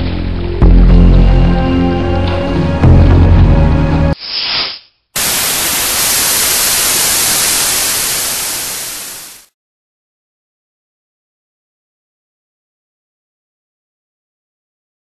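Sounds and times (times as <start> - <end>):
music: 0.0 - 4.2
television static hiss: 5.2 - 9.5.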